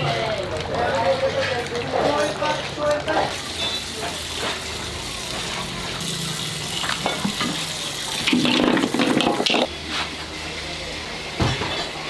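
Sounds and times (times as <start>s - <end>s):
tap water running into wok: 3.2s - 9.7s.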